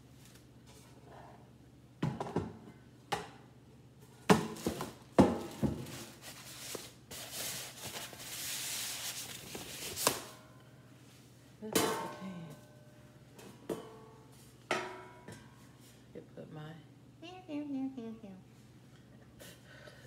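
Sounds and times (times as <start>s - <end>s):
paper packaging rustling: 4.6s - 10.3s
metal basket knocking and clanking: 11.7s - 12.4s, 14.7s - 15.4s.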